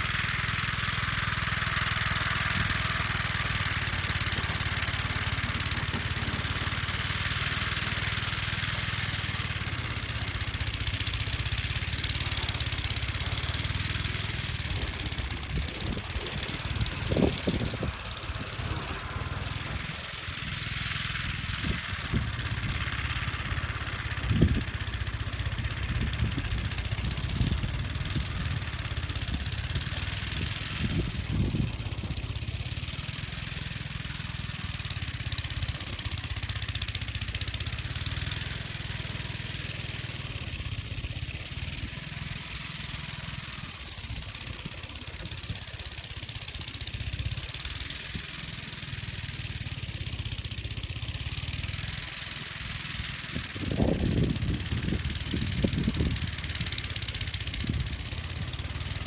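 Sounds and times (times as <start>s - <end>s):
small engine running under load: 0.0s - 59.0s.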